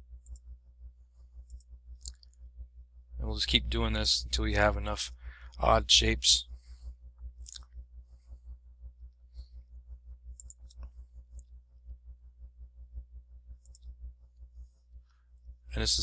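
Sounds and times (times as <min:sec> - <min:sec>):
steady low hum: 0:00.0 - 0:16.0
mouse and keyboard clicking: 0:10.4 - 0:11.5.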